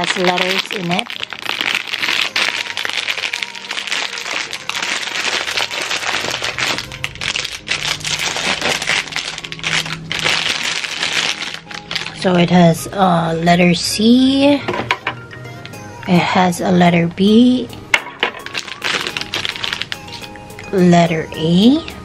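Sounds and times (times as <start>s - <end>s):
plastic bag crinkling: 0.0s - 12.6s, 18.0s - 20.4s.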